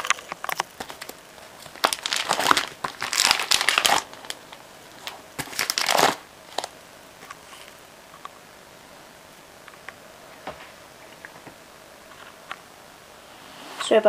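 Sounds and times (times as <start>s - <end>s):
paper rustling and crinkling: 0.0s - 7.8s.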